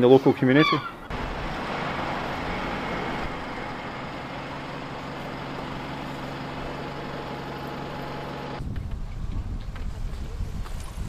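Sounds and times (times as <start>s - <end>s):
street traffic: 1.0s - 9.1s
diesel engine idling: 1.1s - 8.6s.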